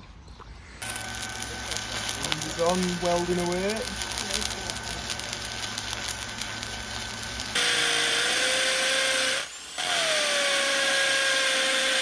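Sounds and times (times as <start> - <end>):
arc welding crackle: 0.8 - 12.0
cordless drill running: 6.2 - 12.0.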